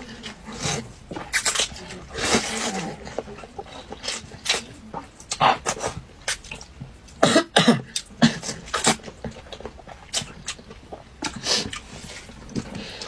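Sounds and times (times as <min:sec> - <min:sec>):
person slurping noodles: 0:02.1 - 0:03.3.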